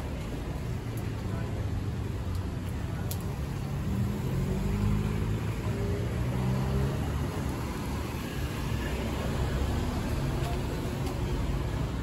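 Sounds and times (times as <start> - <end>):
background traffic noise: 0.0 - 12.0.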